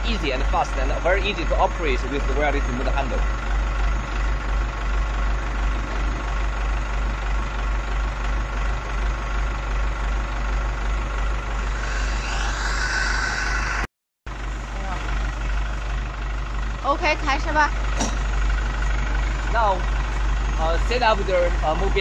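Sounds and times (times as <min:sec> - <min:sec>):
truck engine droning: 0:00.0 - 0:22.0
hiss: 0:11.6 - 0:13.9.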